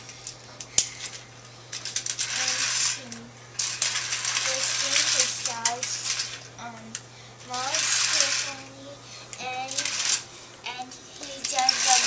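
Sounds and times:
toy train rattling on plastic track: 0.8 - 12.0.

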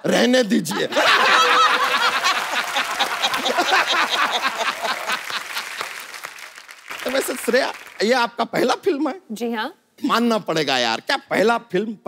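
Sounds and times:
audience laughter: 0.8 - 5.9
audience applauding: 1.0 - 8.2.

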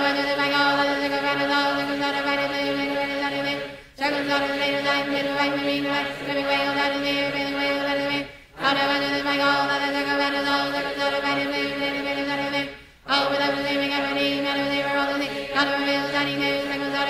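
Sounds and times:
group of voices chanting: 0.0 - 17.0.

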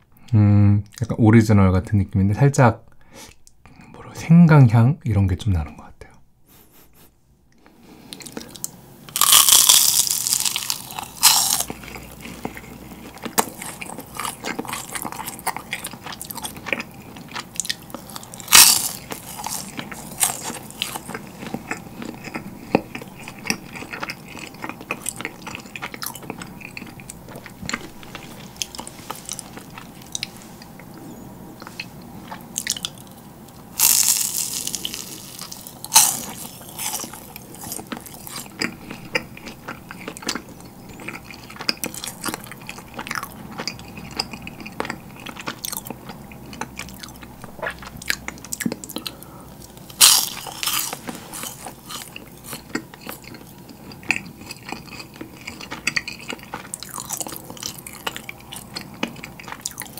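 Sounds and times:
crunchy chewing: 8.1 - 59.9
crisp bites crackling: 8.4 - 16.5, 17.6 - 22.4, 33.8 - 38.7, 49.6 - 53.3.

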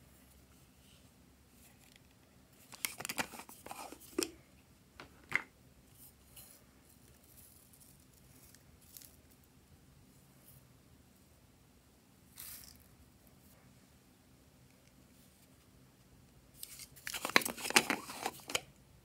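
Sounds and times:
plastic lid clicking and scraping: 2.7 - 4.4, 16.7 - 18.7.

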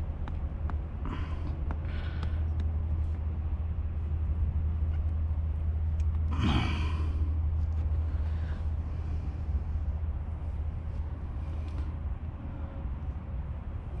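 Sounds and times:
steady low rumble: 0.0 - 14.0
person sighing: 6.3 - 7.3.

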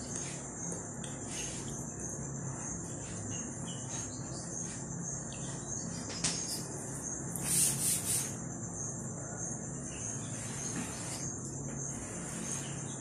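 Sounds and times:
chalk scratching on blackboard: 7.4 - 8.4.

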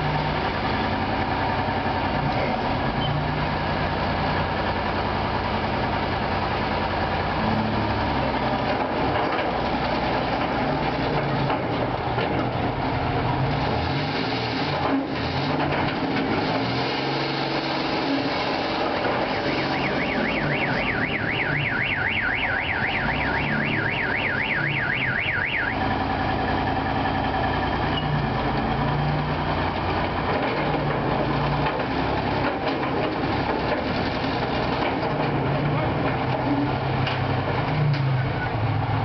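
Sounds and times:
diesel engine running: 0.0 - 39.0
car alarm warbling wail: 19.3 - 25.8.

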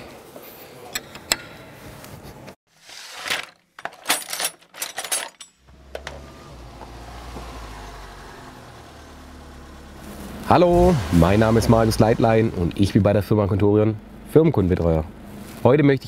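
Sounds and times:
car engine idling: 5.6 - 15.8.

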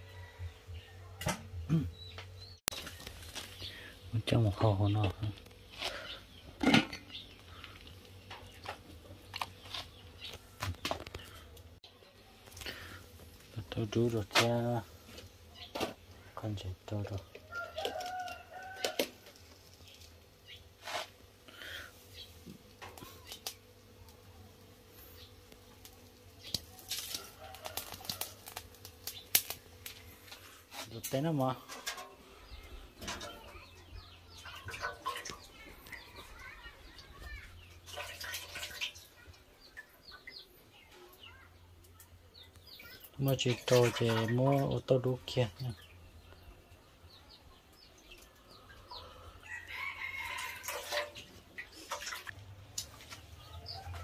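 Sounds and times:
rooster crowing: 17.4 - 19.2, 49.4 - 51.0
wood fire crackling and popping: 17.4 - 20.6, 22.4 - 24.2, 25.3 - 32.1.

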